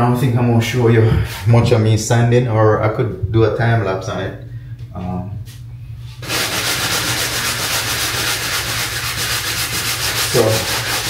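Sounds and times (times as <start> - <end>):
hand sanding a wall: 6.2 - 11.0.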